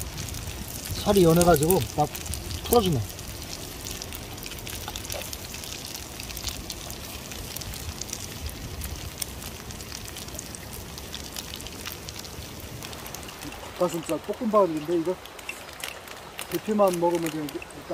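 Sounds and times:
oil sizzling in a frying pan: 0.0 - 17.9.

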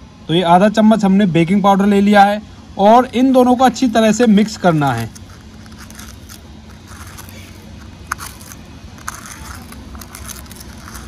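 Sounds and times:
metal spoon scraping in paper cup: 3.6 - 11.0.

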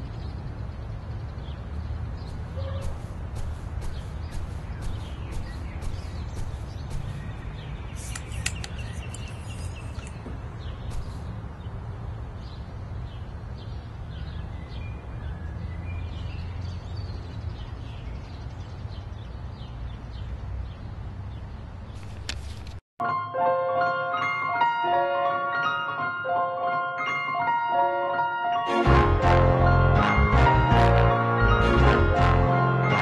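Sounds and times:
small birds chirping: 0.0 - 22.8
steady low rumble: 2.1 - 8.0
sharp clicks and knocks: 8.0 - 11.2, 22.0 - 22.8.

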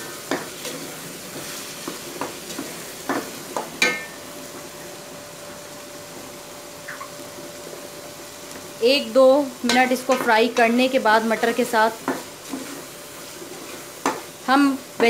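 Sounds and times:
meat sizzling in a pot: 0.0 - 15.0
spatula scraping a pot: 12.1 - 13.9.

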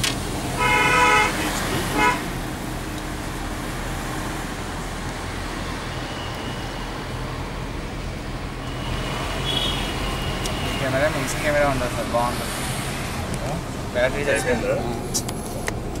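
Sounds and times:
vehicle engine hum and road noise: 0.0 - 16.0
car horn toot: 0.6 - 2.3, 8.8 - 11.0.

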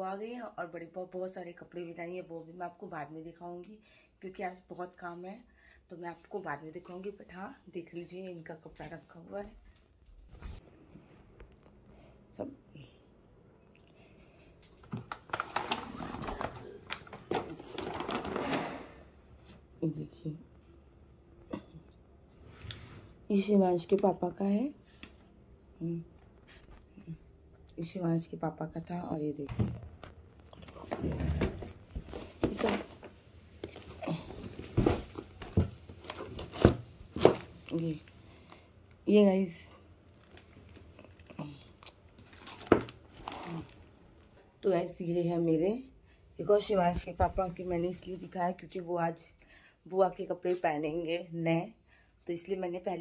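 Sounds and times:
boxes and packaging rustling: 14.6 - 19.1, 29.6 - 38.6, 40.1 - 44.0
plastic bag rustling: 14.8 - 19.0, 40.1 - 44.2.

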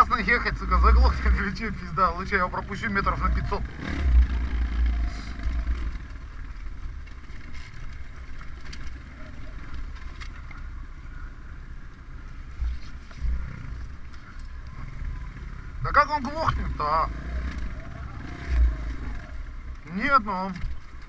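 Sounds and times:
dirt bike engine running: 0.0 - 21.0
wind rumble on microphone: 3.0 - 15.8.

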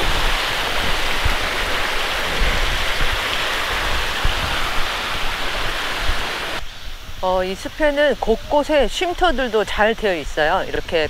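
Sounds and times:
stream rushing over rocks: 0.0 - 11.0.

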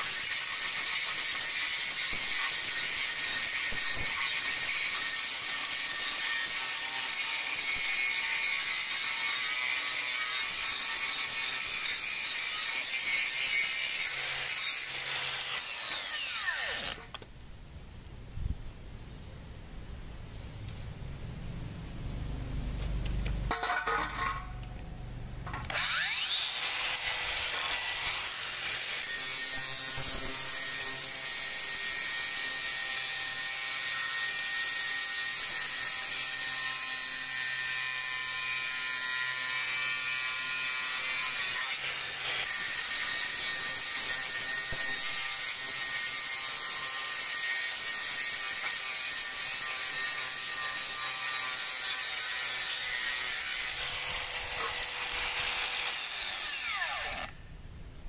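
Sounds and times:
angle grinder motor whine: 25.4 - 29.0, 53.7 - 57.4.

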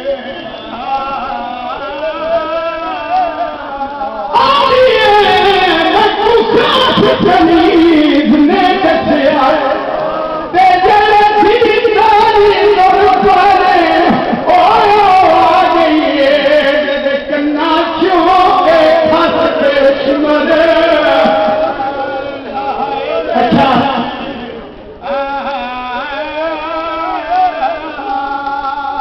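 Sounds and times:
men chanting a lament: 0.0 - 29.0.

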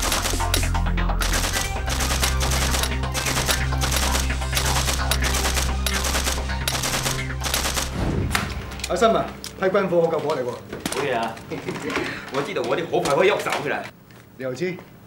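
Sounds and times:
automatic weapons firing: 0.0 - 8.0.

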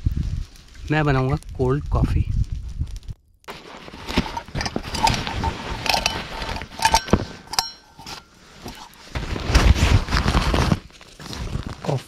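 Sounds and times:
fabric rustling: 3.5 - 11.9
metal mug clinking: 4.3 - 8.9.

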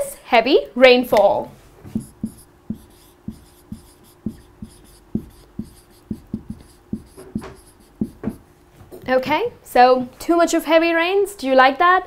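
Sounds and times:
marker pen writing on whiteboard: 1.9 - 8.5.

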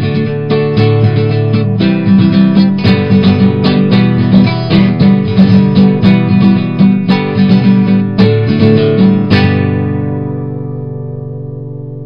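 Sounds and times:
strummed acoustic guitar: 0.0 - 12.0.

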